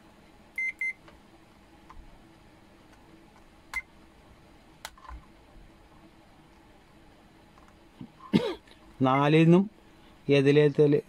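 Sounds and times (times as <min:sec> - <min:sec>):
multimeter high beep: 0:00.6 - 0:01.0.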